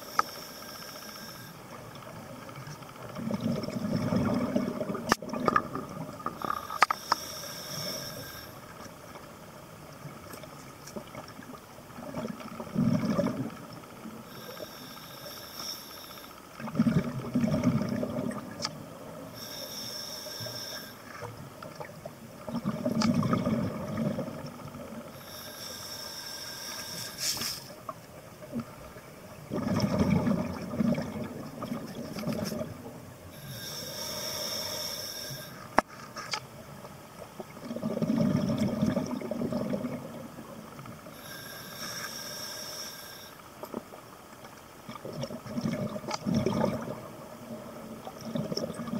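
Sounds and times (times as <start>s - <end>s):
regulator inhale hissing: 0.0s - 1.8s, 6.4s - 8.8s, 14.2s - 16.5s, 19.3s - 21.2s, 25.1s - 27.8s, 33.3s - 35.8s, 41.1s - 43.5s
exhaled bubbles gushing: 3.2s - 6.3s, 12.1s - 13.6s, 16.6s - 18.6s, 22.4s - 24.5s, 29.4s - 32.8s, 37.6s - 40.3s, 45.0s - 47.2s, 48.0s - 48.9s.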